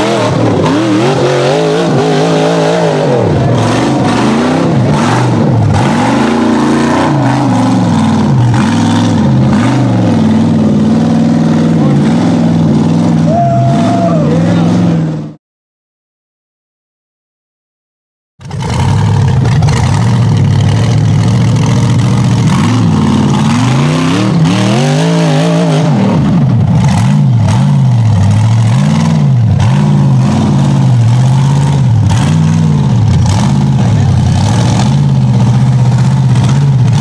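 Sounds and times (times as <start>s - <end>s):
engine revving under load: 0.0s - 15.4s, 18.4s - 37.0s.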